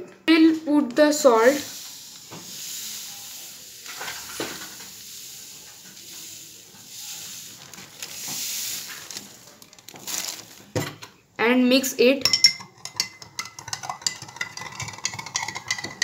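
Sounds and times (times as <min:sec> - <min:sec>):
salt grains pouring into water: 0:01.4 - 0:10.7
plastic bag rustling: 0:01.4 - 0:10.9.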